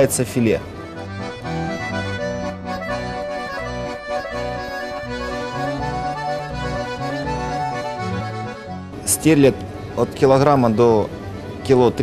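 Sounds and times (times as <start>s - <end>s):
background music with sustained chords: 0.0s - 12.0s
bass line: 0.8s - 9.1s.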